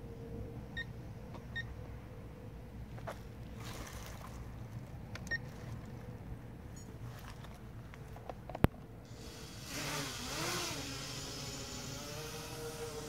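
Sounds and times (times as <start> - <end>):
quadcopter motors whining: 9.1 - 13.0.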